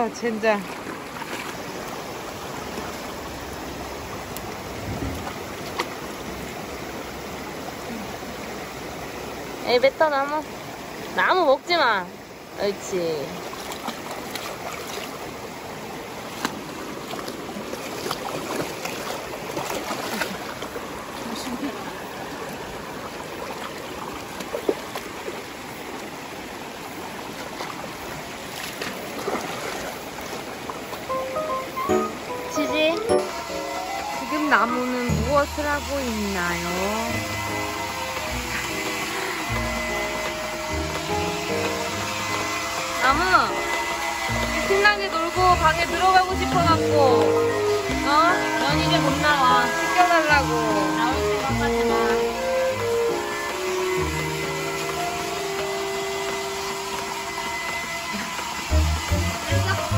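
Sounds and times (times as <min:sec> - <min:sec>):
stream running over rocks: 0:00.0 - 0:59.9
dog splashing in water: 0:16.3 - 0:21.6.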